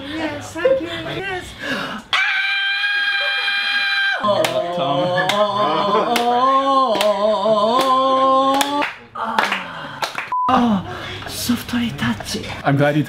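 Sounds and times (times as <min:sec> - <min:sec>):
person singing long notes: 0:04.2 - 0:08.9
hand claps: 0:04.4 - 0:04.6, 0:06.1 - 0:06.3, 0:06.9 - 0:07.2, 0:07.8 - 0:10.3.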